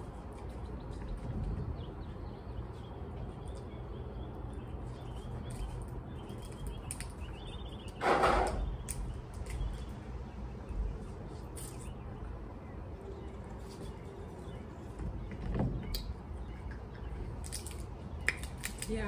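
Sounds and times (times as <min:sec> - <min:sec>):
crab shells cracking: 0:17.4 - 0:19.0.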